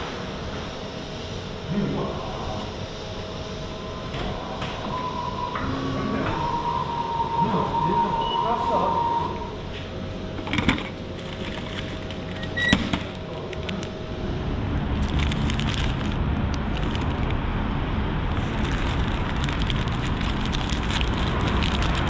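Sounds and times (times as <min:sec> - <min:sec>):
low rumble of traffic: 0:00.0 - 0:22.0
paper wrapper crinkling: 0:11.2 - 0:12.4, 0:15.0 - 0:17.3, 0:18.3 - 0:22.0.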